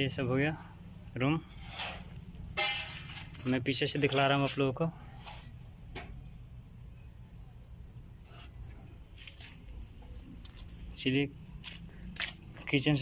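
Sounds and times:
footsteps on dirt path: 11.5s - 12.9s.

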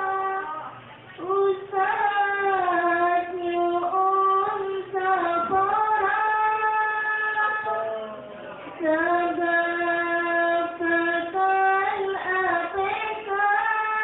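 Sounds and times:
young female voice singing: 0.0s - 8.0s, 8.7s - 14.0s.

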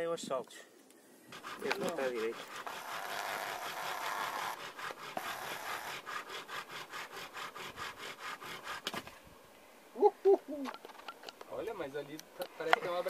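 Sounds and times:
bow drill spindle grinding wood: 1.3s - 9.0s.

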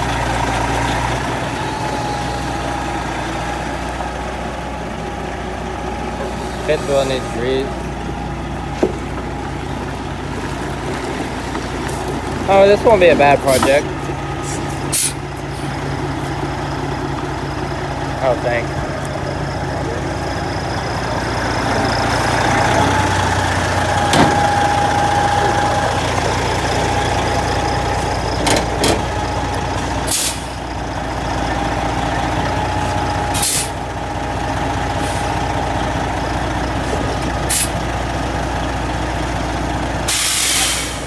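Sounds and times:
diesel engine idling: 0.0s - 41.0s
air brake hisses: 14.9s - 15.2s, 30.1s - 30.6s, 33.4s - 33.8s, 40.1s - 41.0s.

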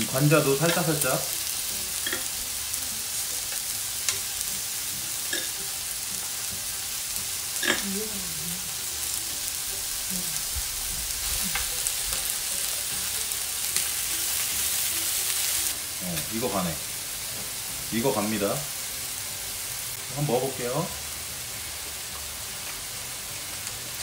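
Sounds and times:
meat sizzling on a grill plate: 0.0s - 24.0s.

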